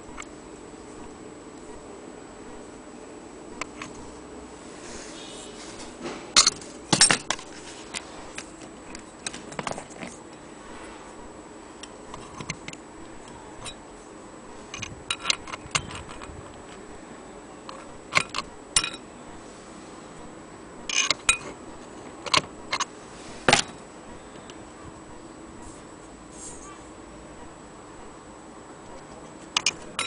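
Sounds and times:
metal clock parts clinking: 14.7s - 16.3s, 17.7s - 19.0s, 20.9s - 21.5s, 29.5s - 30.0s.

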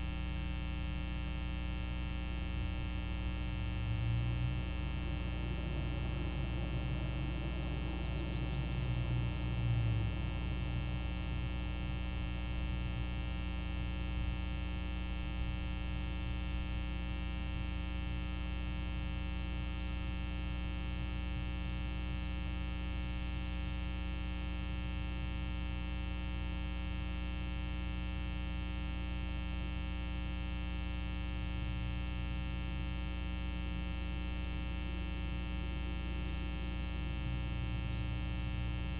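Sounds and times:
electrical mains hum and buzz: 0.0s - 38.9s.

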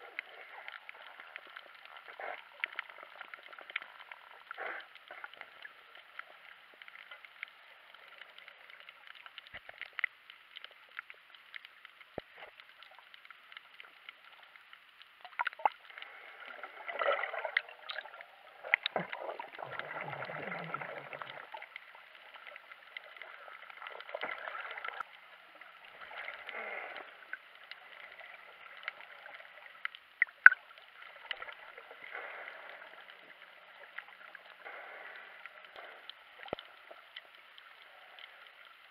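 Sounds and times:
underwater hiss: 0.0s - 9.2s, 15.5s - 29.8s, 30.7s - 37.0s
bubbling and gurgling water: 0.0s - 38.9s.

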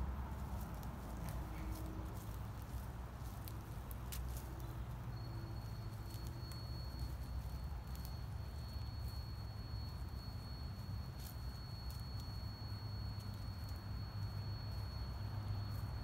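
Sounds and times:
clicks and rustles in dry leaves: 0.0s - 16.0s
thin steady high tone: 0.5s - 16.0s.

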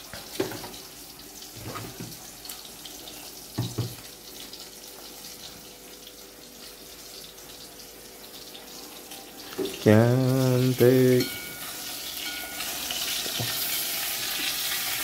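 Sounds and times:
pots simmering hiss: 0.0s - 15.0s
kitchenware knocks: 3.6s - 4.0s.

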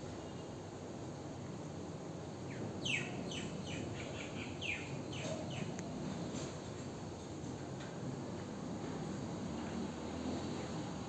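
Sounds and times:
low background noise: 0.0s - 11.0s
bird chirping: 2.5s - 5.7s.

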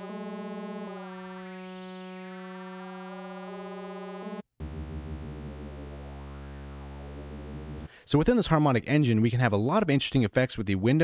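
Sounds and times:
sustained synth tone: 0.0s - 7.9s.

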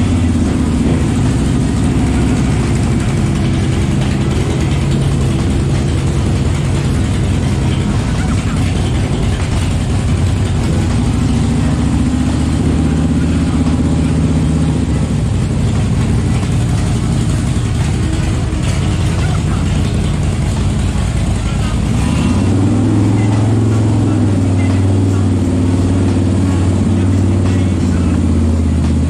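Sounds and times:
engines droning: 0.0s - 29.0s.

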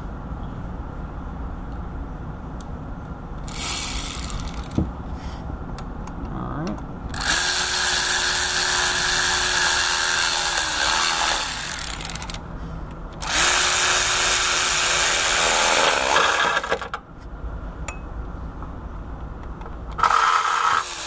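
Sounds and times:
power ratchet running in bolts: 3.4s - 4.8s, 7.1s - 12.4s, 13.2s - 16.9s, 20.0s - 21.0s.

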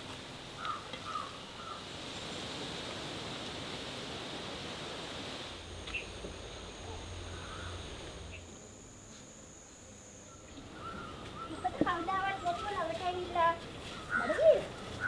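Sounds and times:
outdoor background noise: 0.0s - 15.0s
faint bird calls: 0.6s - 1.9s, 5.8s - 8.5s, 10.3s - 15.0s
high-pitched drone: 5.5s - 14.9s.

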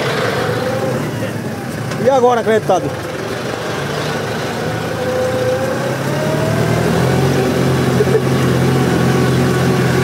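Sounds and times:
tractor diesel engine under load: 0.0s - 10.0s
rising whine: 4.2s - 10.0s.

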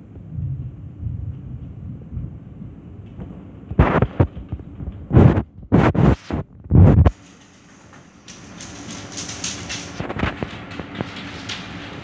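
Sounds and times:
thunder claps and rumbles: 0.0s - 5.8s.

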